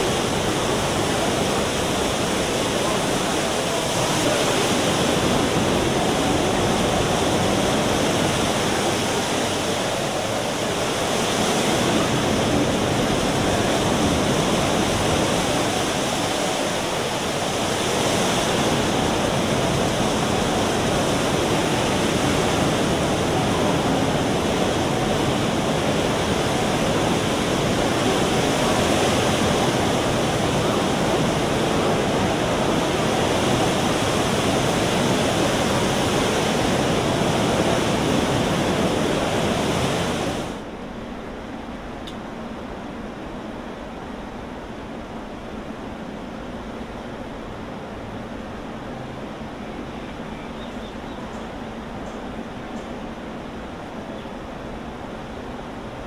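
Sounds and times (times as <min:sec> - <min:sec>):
water pouring rush: 0:00.0 - 0:40.7.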